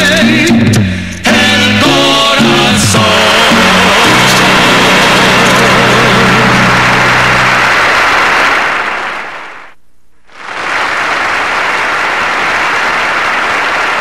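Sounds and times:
audience applauding: 0:04.0 - 0:09.7, 0:10.3 - 0:14.0.

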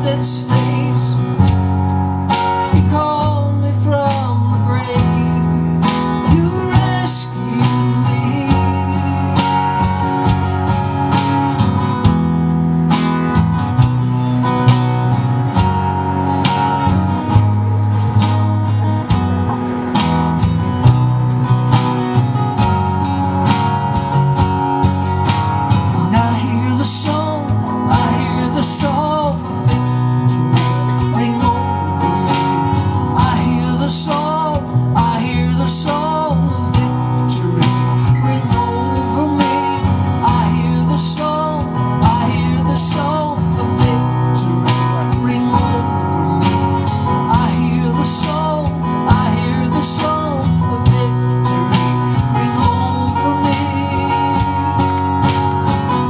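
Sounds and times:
man singing: 0:00.0 - 0:01.7, 0:02.4 - 0:10.5, 0:25.8 - 0:56.0
bass line: 0:00.0 - 0:56.0
strummed acoustic guitar: 0:00.0 - 0:56.0.

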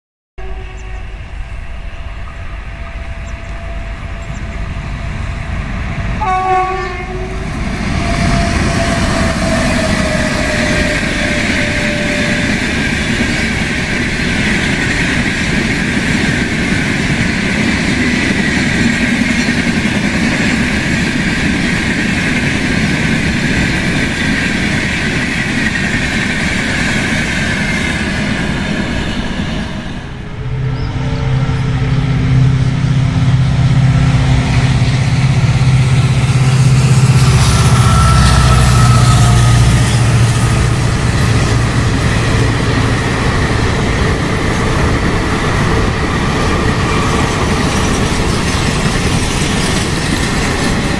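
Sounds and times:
train horn: 0:00.4 - 0:12.9, 0:30.2 - 0:41.8
train wheels rushing on rail: 0:00.4 - 0:50.9.

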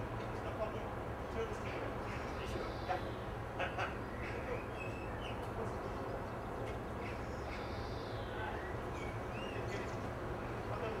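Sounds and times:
distant conversation: 0:00.0 - 0:11.0.

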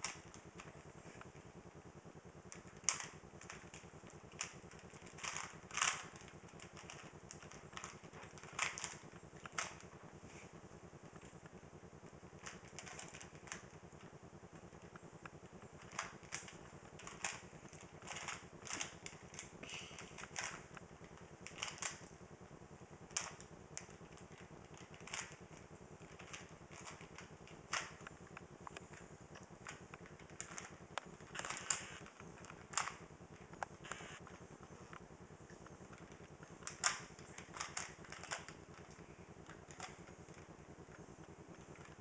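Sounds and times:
puzzle cube plastic clicks: 0:02.5 - 0:09.8, 0:15.8 - 0:22.1, 0:35.9 - 0:40.5.

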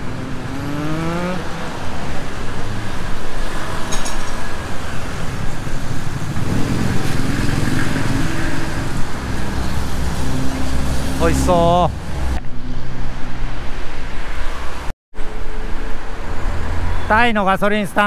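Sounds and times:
engine rising in pitch: 0:00.0 - 0:01.8, 0:06.4 - 0:13.5
engine running close by: 0:00.0 - 0:04.6
cars and motorcycles passing: 0:00.0 - 0:18.0.

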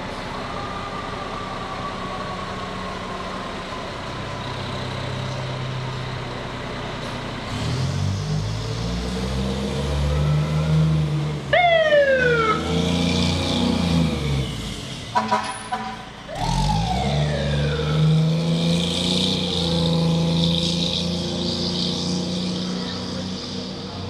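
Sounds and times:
siren sweeps: 0:00.0 - 0:05.2, 0:09.6 - 0:14.5, 0:15.2 - 0:24.0
diesel truck engine: 0:00.0 - 0:24.0
short horn blast: 0:15.2 - 0:16.1.

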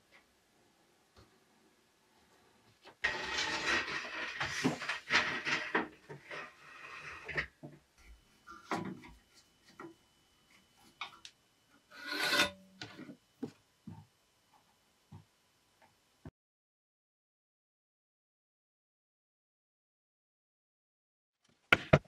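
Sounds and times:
wooden boards scraping: 0:03.0 - 0:07.6, 0:11.9 - 0:13.0.

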